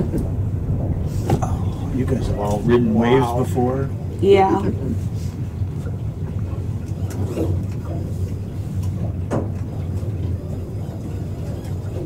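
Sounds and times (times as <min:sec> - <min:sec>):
boat engine idling: 0:00.0 - 0:12.0.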